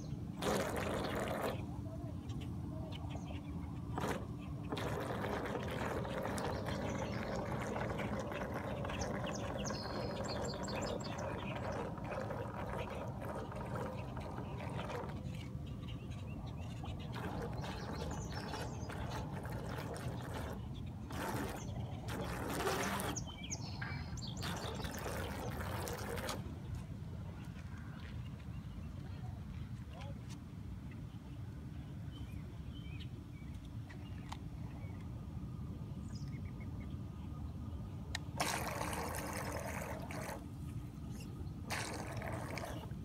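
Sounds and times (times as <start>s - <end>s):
water trickling and churning: 0.0s - 1.8s, 3.0s - 26.6s, 38.1s - 43.0s
faint motor hum: 0.0s - 43.0s.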